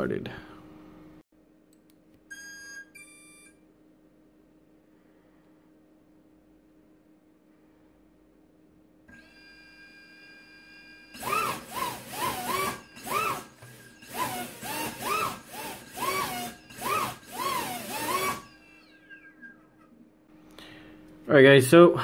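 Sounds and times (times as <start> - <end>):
drone motor whining and revving: 11.2 - 18.8.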